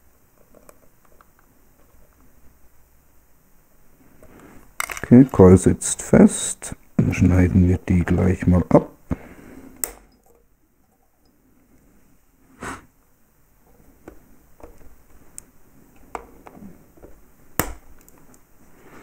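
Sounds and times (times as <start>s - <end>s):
cutters snipping wire: 9.8s - 10.1s.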